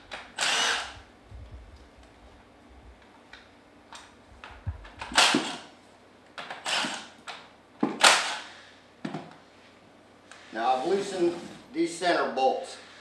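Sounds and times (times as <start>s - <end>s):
cordless impact driver whirring: 0.1s - 1.1s, 5.0s - 5.7s, 6.5s - 7.2s, 8.0s - 8.6s.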